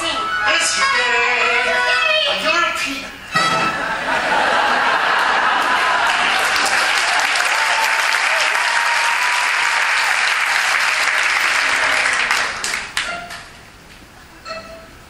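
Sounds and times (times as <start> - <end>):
audience applauding: 3.4 - 13.4.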